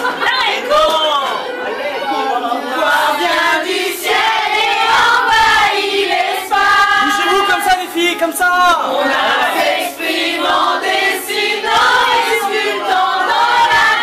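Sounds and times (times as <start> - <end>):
women singing in chorus: 2.2 - 7.5, 8.8 - 14.0.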